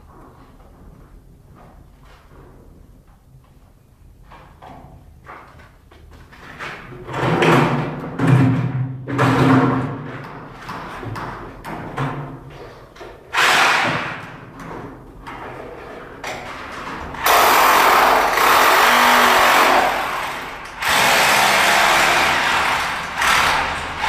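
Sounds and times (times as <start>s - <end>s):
electric drill running: 17.2s - 23.8s.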